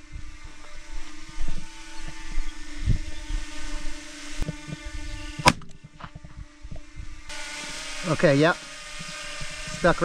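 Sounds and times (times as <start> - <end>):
wind buffeting microphone: 0.0 - 7.3
steady hum: 0.0 - 10.0.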